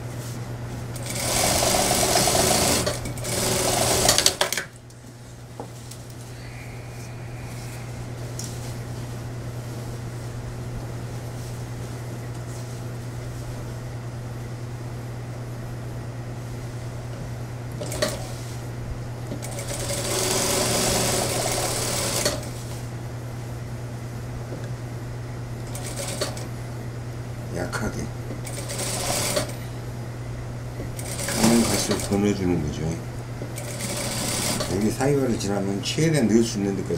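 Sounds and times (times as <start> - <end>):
steady low hum: 0.0 - 36.9
sewing machine stitching: 1.0 - 4.6, 28.5 - 29.6, 31.0 - 32.2, 33.6 - 34.8.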